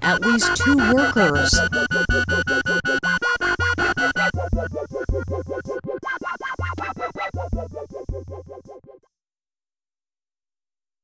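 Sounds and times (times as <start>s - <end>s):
repeating pitched notes: 0.0s - 8.8s
pulsing bass notes: 0.2s - 8.8s.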